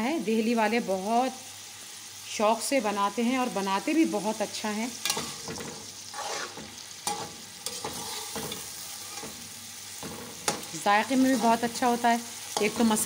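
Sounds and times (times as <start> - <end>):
meat sizzling in oil: 0.0 - 13.0
metal spoon scraping pot: 5.1 - 9.4.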